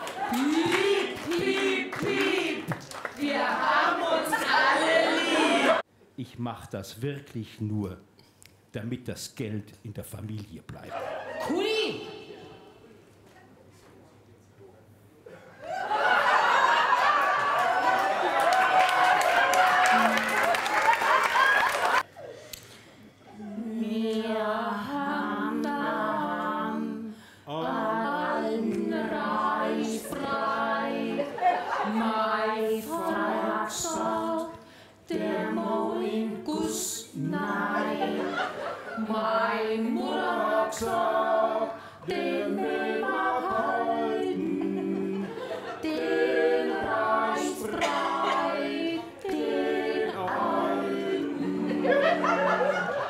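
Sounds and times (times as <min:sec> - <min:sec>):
group of voices singing: 0:00.0 - 0:05.8, 0:23.3 - 0:53.0.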